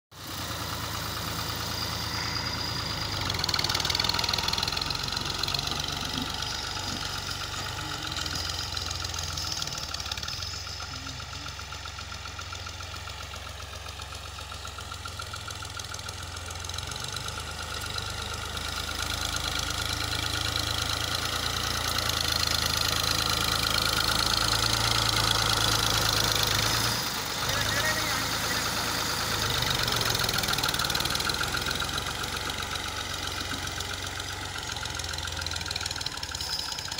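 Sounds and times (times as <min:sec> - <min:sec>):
tractor diesel engine running: 0:00.1 - 0:36.9.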